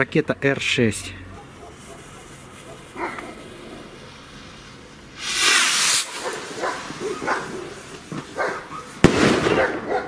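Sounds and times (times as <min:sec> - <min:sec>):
firework rocket launching hiss: 0:02.2 - 0:09.8.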